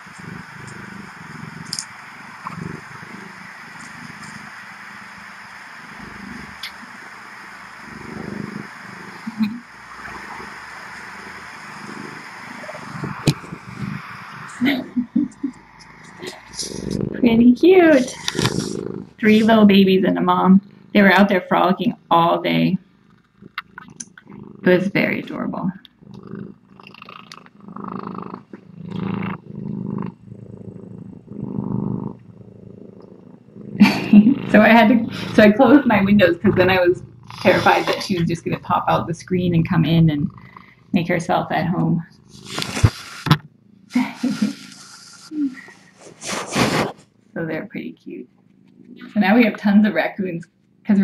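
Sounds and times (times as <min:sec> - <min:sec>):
steady hiss: 0:00.0 - 0:47.6
raccoon growling low: 0:00.0 - 0:51.0.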